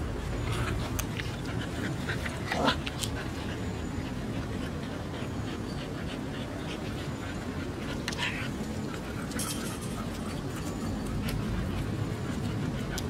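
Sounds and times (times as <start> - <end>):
puppies scuffling and mouthing: 0.0 - 13.0.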